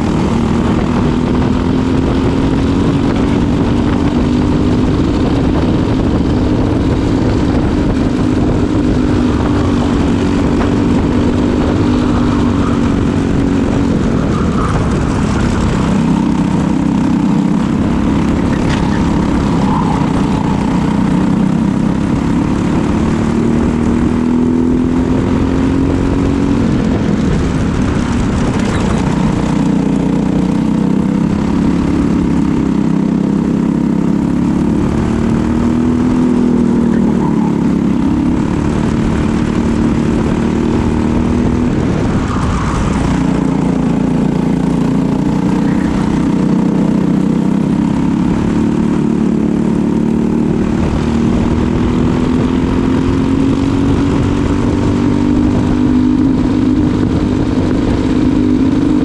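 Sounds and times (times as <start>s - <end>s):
kart engine racing: 0.0s - 59.0s.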